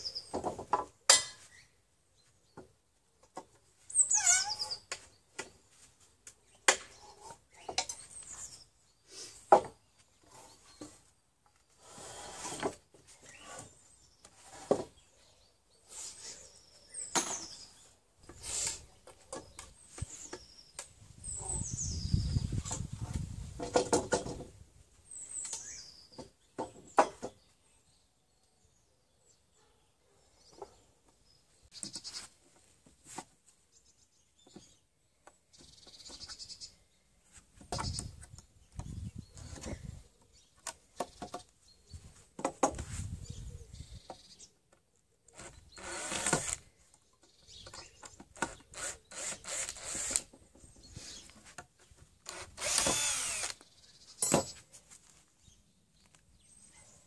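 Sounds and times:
nails squealing against wood: 0:03.9 - 0:05.0, 0:45.3 - 0:46.6, 0:47.7 - 0:51.3, 0:52.2 - 0:53.6
cordless drill: 0:45.4 - 0:46.6, 0:48.4 - 0:50.3, 0:52.2 - 0:53.6.

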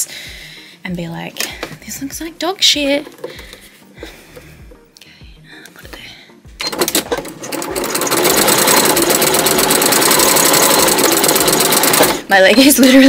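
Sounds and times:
sewing machine stitching: 0:06.6 - 0:12.3.

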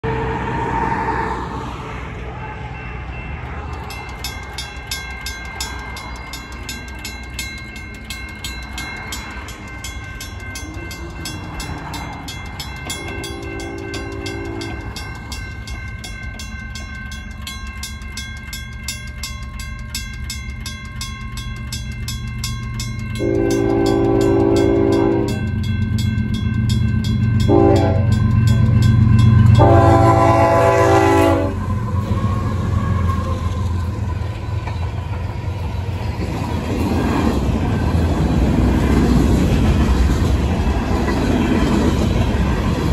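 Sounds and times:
diesel locomotive rumble: 0:00.0 - 0:42.9
railroad crossing bells ringing: 0:01.0 - 0:42.9
locomotive horn blasts: 0:13.0 - 0:15.0, 0:23.2 - 0:25.5, 0:27.5 - 0:28.2, 0:29.5 - 0:33.5.

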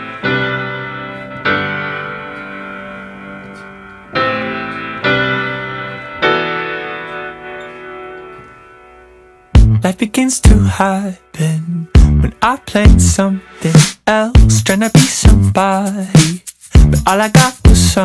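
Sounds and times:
piano chords ringing: 0:00.0 - 0:13.8.

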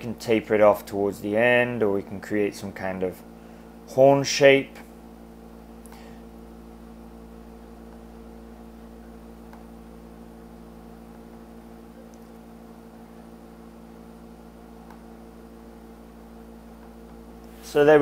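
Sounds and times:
low hum with hiss: 0:00.0 - 0:18.0.

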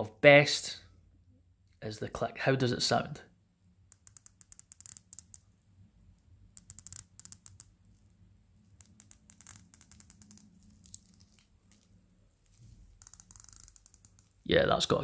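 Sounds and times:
watch bezel ratcheting clicks: 0:03.9 - 0:05.4, 0:06.6 - 0:07.7, 0:13.0 - 0:14.4.

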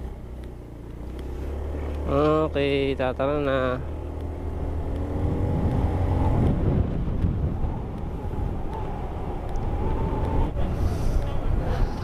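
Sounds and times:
scooter engine pulling away: 0:00.0 - 0:07.1
road rumble: 0:00.0 - 0:12.0
wind on microphone: 0:04.9 - 0:12.0.

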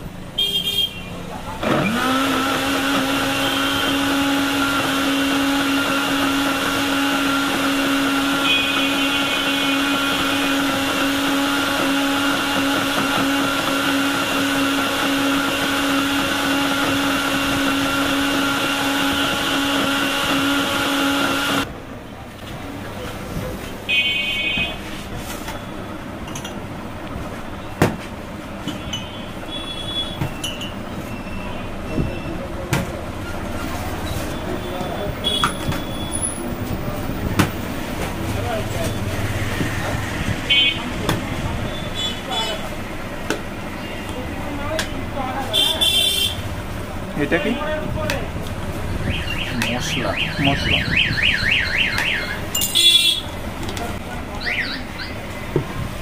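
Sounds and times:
vehicle horn tooting: 0:00.4 - 0:01.2, 0:08.3 - 0:10.6, 0:23.9 - 0:24.8, 0:28.8 - 0:30.4, 0:34.4 - 0:36.4, 0:40.5 - 0:40.9, 0:45.4 - 0:46.5, 0:51.9 - 0:53.4
blender running: 0:01.6 - 0:21.7.

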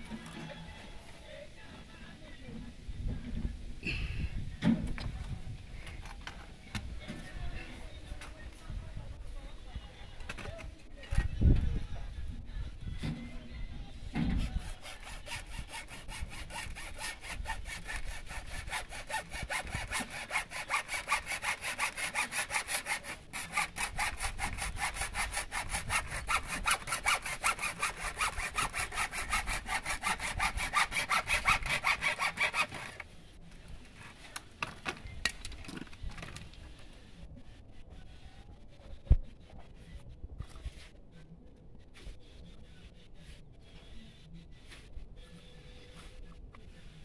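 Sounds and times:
hacksaw cutting plastic pipe: 0:14.2 - 0:33.0.

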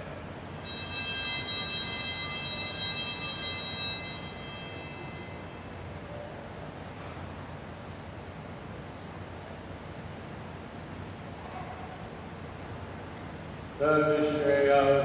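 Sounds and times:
altar bells ringing: 0:00.5 - 0:06.1.

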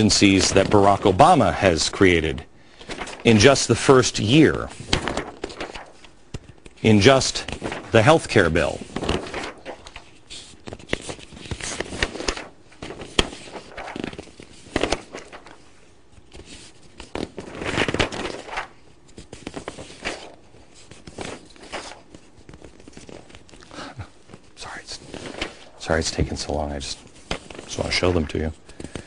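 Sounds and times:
paper rustling and crackling: 0:00.0 - 0:29.0.

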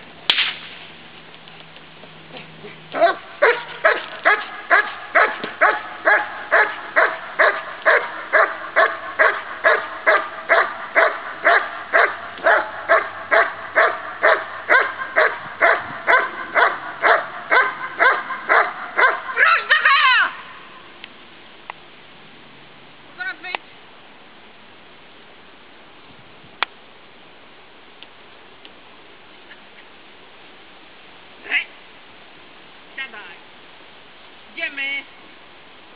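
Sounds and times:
dog barking rhythmically: 0:03.0 - 0:19.7.

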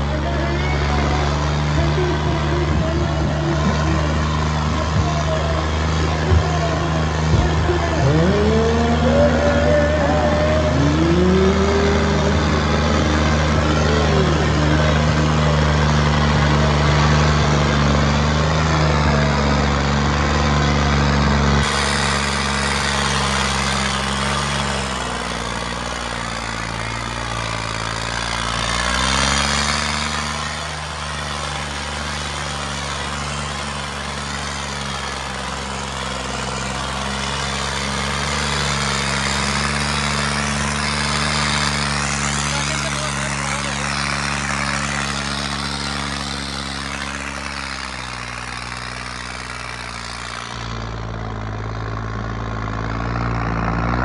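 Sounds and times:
rising pitch glides: 0:00.0 - 0:31.6
tractor engines running: 0:00.0 - 0:54.0.

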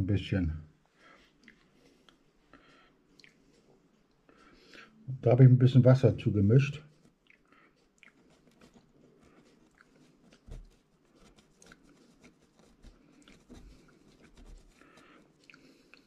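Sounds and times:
paintbrush dabbing: 0:07.8 - 0:16.0.

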